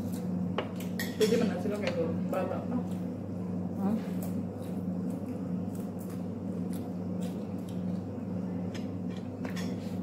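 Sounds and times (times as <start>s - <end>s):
steady low hum: 0.0s - 10.0s
person chewing: 4.2s - 9.0s.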